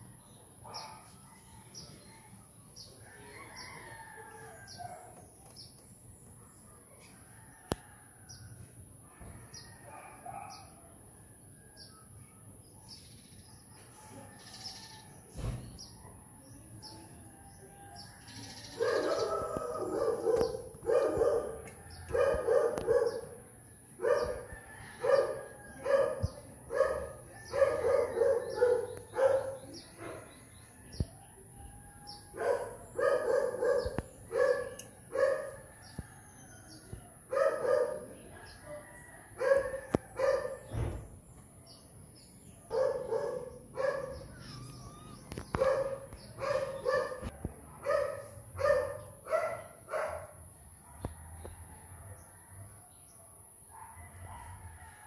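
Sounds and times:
dog barking: 0.7s - 1.2s, 9.9s - 10.9s, 18.7s - 23.4s, 24.0s - 30.3s, 32.3s - 35.7s, 37.3s - 38.6s, 39.4s - 40.7s, 42.7s - 44.3s, 45.5s - 51.3s, 53.7s - 54.6s.

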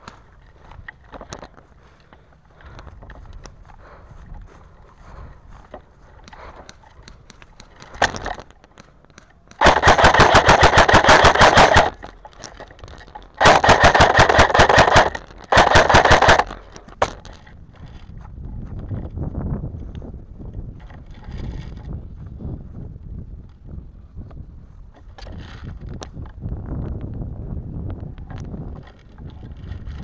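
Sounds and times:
airsoft rifle automatic bursts: 9.6s - 12.6s, 13.3s - 16.7s.

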